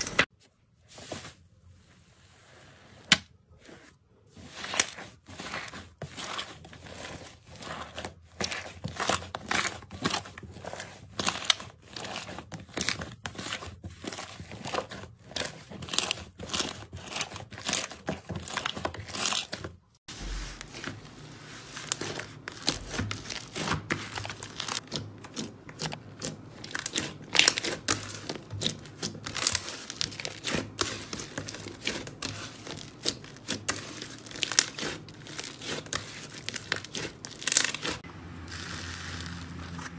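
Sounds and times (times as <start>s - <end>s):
slime crackling and popping: 21.9s - 39.9s.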